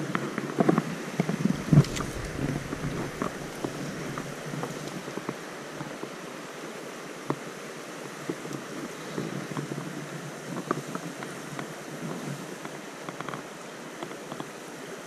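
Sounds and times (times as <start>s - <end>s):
rustles and knocks of handling: 1.4s - 5.1s
stream flowing over rocks: 1.4s - 5.7s
thump: 1.5s - 4.4s.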